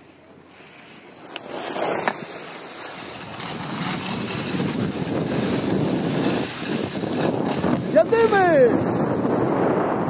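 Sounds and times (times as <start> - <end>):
skis scraping over snow: 0.0 - 10.0
wind rushing over microphone: 2.9 - 10.0.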